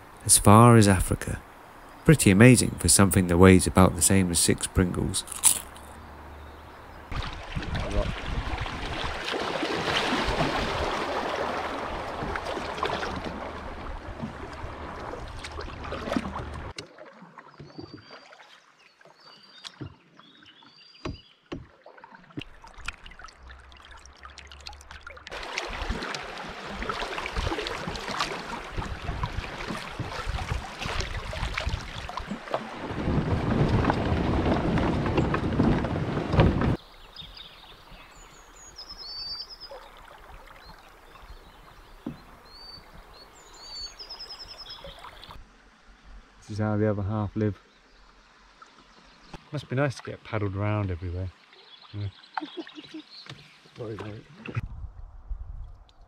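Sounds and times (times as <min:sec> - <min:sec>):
water rushing and splashing: 0:00.0 - 0:54.7
wind buffeting microphone: 0:06.0 - 0:09.3, 0:28.6 - 0:36.8, 0:54.6 - 0:56.0
bird chirps: 0:36.8 - 0:39.9, 0:40.6 - 0:45.4, 0:51.6 - 0:53.8.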